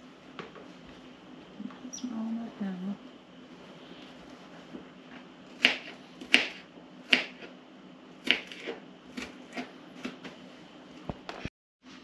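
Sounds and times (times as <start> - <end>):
knife chopping on plastic board: 5.6 - 7.5, 8.2 - 10.3.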